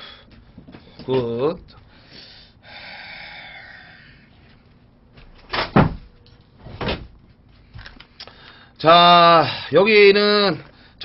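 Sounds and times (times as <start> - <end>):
chair knocks: 5.6 - 6.0.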